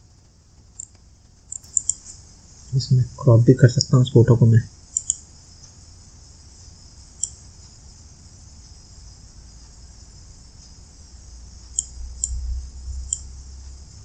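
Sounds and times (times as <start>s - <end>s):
high-pitched hiss: 0.0s - 14.0s
computer mouse clicks: 0.6s - 2.1s, 4.9s - 5.2s, 7.2s - 7.5s, 11.7s - 12.4s, 13.1s - 13.3s
low rumble: 11.2s - 14.0s.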